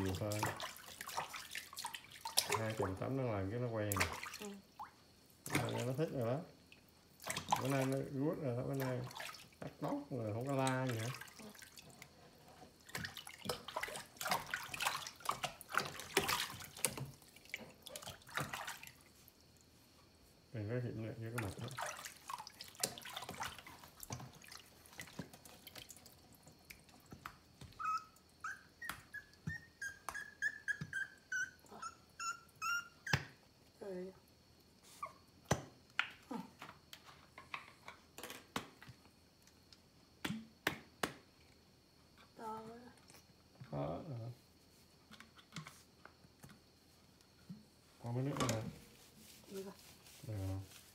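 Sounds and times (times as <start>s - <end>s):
water splashing in plastic basin: 0.0s - 19.6s, 21.1s - 28.2s, 47.5s - 50.9s.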